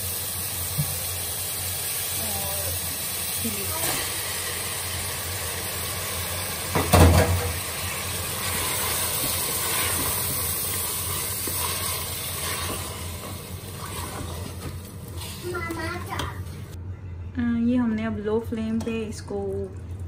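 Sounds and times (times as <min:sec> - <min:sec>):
meat sizzling in hot oil: 0:00.0 - 0:16.8
wooden spoon stirring pot: 0:08.4 - 0:16.6.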